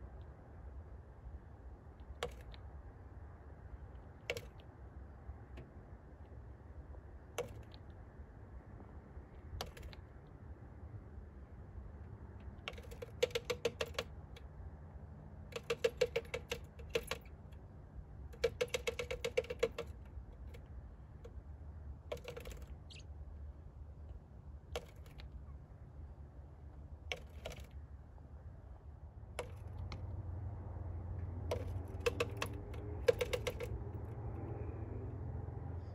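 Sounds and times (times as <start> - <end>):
bird beak tapping on glass: 12.6 - 14.4, 15.5 - 17.4, 18.3 - 20.6, 22.1 - 23.1, 27.1 - 27.7, 31.4 - 34.0.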